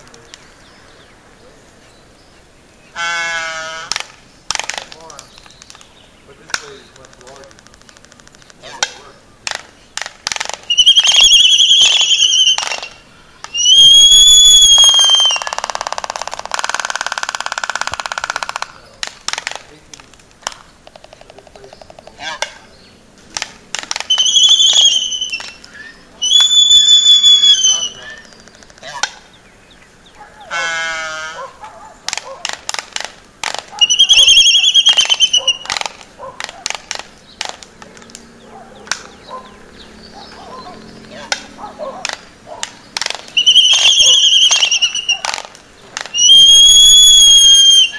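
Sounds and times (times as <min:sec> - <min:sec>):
albatross bill clacking: 0:00.0 - 0:47.9
high whistled bird call: 0:10.5 - 0:16.2, 0:23.9 - 0:29.3, 0:33.7 - 0:36.0, 0:42.8 - 0:47.9.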